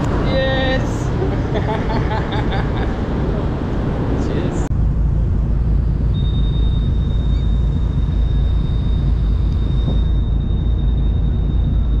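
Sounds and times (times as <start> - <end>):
boat engine rumble: 0.0 - 12.0
thin high whine: 5.6 - 12.0.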